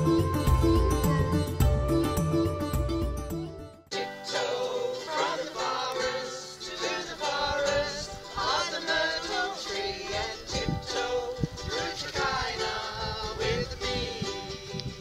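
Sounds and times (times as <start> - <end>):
ukulele: 0.0 - 15.0
group of voices singing: 3.9 - 14.7.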